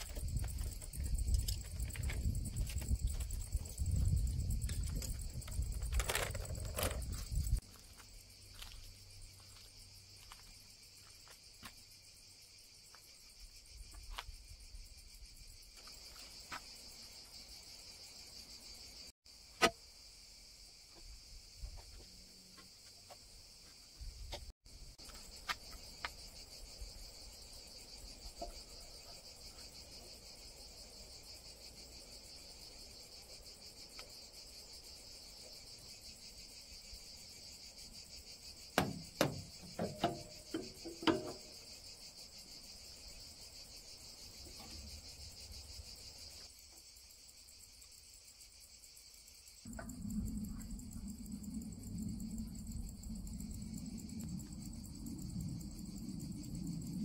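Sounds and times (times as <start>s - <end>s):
cicadas singing: 0.0s - 57.0s
clicks and knocks on metal pipes: 38.8s - 41.5s.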